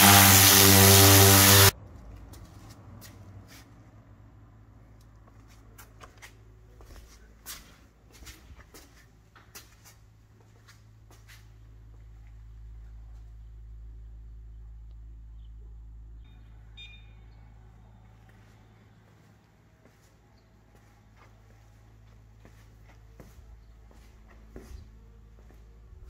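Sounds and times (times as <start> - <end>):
low steady hum: 6.4 - 26.0.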